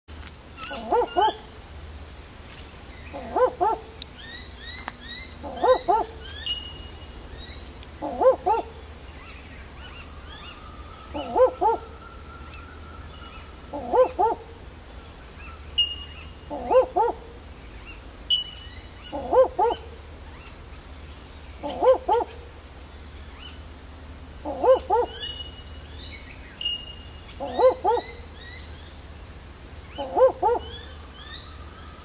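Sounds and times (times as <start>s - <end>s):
owl barking call: 0.6s - 1.5s, 3.1s - 14.7s, 15.5s - 20.1s, 21.6s - 22.6s, 24.4s - 25.8s, 26.6s - 28.7s, 29.8s - 32.0s
small birds chirping: 0.6s - 1.5s, 2.4s - 23.7s, 24.4s - 32.0s.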